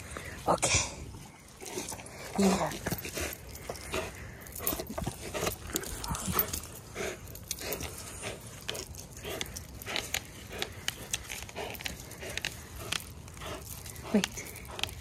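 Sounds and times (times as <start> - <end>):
dog growling noises: 0.7 - 15.0.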